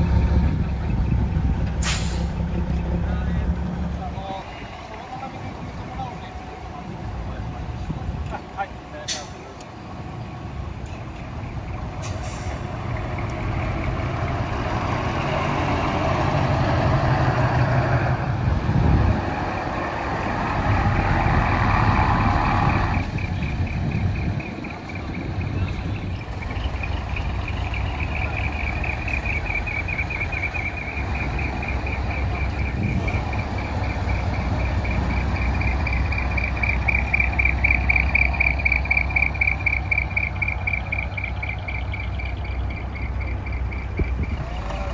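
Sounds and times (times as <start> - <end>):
diesel truck engine running: 0.0 - 44.9
air brake hiss: 1.8 - 2.4, 9.1 - 9.6, 12.0 - 12.7
reversing alarm beeping: 22.7 - 44.4.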